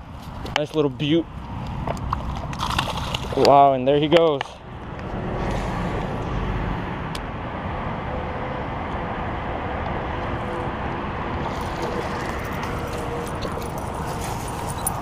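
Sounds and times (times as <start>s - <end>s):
fish splashing at the surface: 2.3s - 3.4s.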